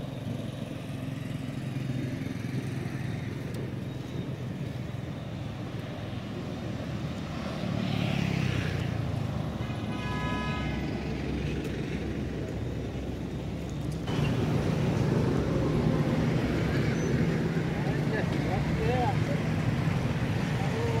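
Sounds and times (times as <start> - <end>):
traffic engine rumble: 0.0 - 21.0
car horn toot: 9.6 - 10.9.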